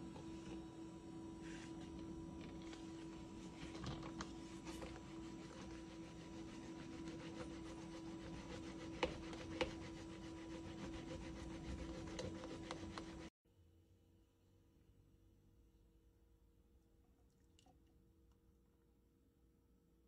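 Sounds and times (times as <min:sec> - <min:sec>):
steady low hum: 0:00.0 - 0:13.3
plunger frother swishing milk: 0:01.4 - 0:13.3.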